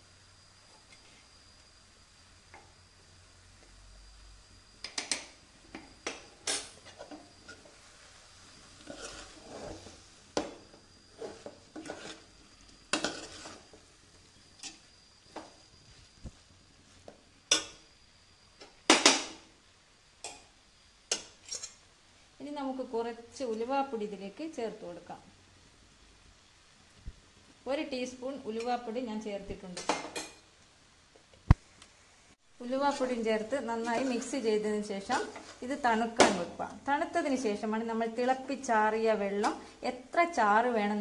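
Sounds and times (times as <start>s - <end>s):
spoon scraping metal pan: 8.8s - 10.0s, 11.1s - 12.3s, 12.9s - 13.8s, 21.1s - 21.8s, 32.9s - 35.8s, 39.4s - 39.8s.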